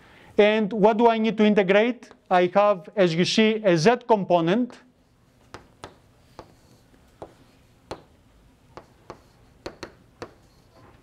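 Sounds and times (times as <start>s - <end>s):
chalk ticking on a blackboard: 5.4s - 10.9s.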